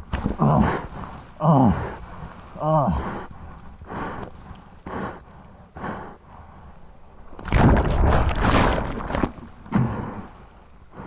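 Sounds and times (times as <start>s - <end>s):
water splashing: 7.3s - 10.0s
churning water rushing: 7.4s - 10.4s.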